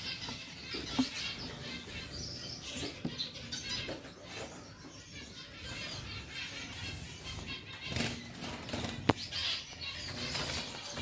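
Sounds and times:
finches chirping: 0.0s - 11.0s.

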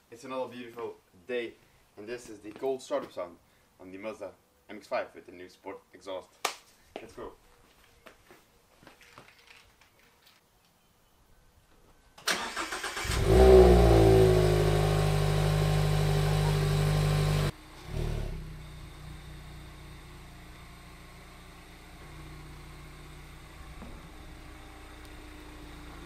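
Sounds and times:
starter motor cranking: 12.3s - 14.4s
car engine idling: 12.4s - 26.0s.

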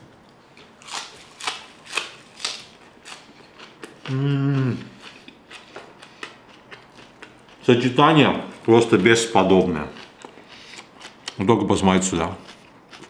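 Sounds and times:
person chewing crunchy food: 0.3s - 11.5s, 12.4s - 13.0s
person humming mmm: 4.0s - 5.0s.

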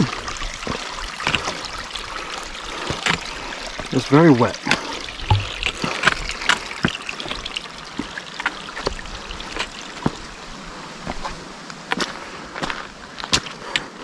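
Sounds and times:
water trickling over rocks: 0.0s - 14.0s
footsteps on rocks: 0.6s - 1.7s, 4.7s - 14.0s.

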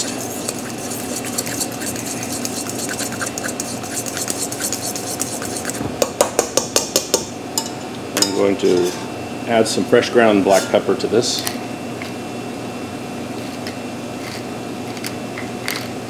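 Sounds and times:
fork whisking wet paste: 0.0s - 5.8s.

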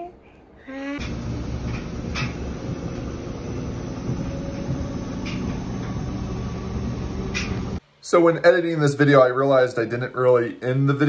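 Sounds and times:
faint hum: 0.0s - 11.0s
washing machine drum rumble: 1.0s - 7.8s.

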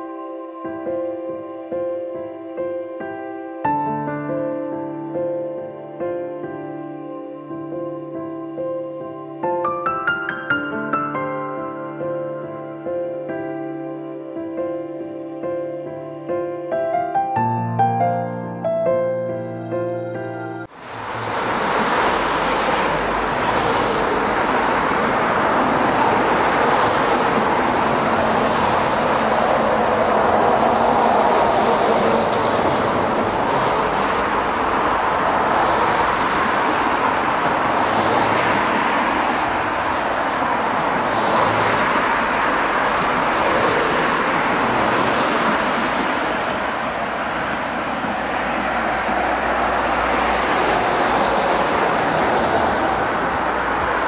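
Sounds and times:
car road noise: 20.6s - 54.0s.

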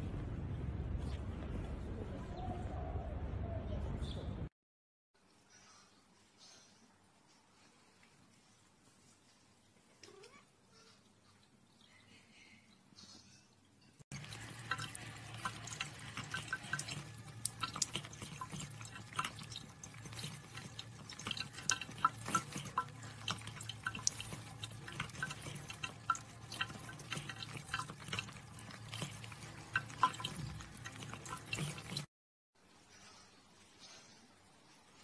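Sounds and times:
low steady hum: 14.1s - 32.1s
water trickling and dripping: 14.1s - 32.1s.

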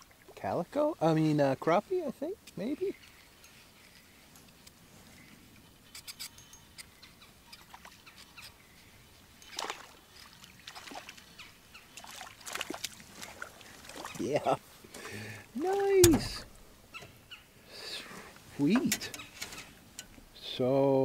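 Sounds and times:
fish splashing at water surface: 9.5s - 11.2s, 12.0s - 14.2s.

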